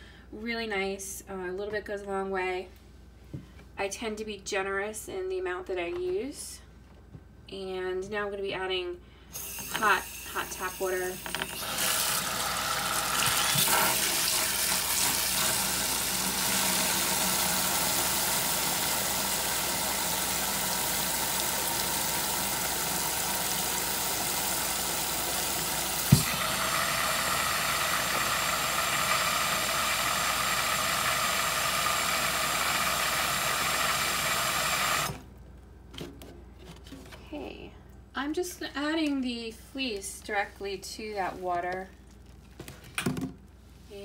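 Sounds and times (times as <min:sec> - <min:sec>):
tap water pouring into basin: 0:11.3 - 0:34.0.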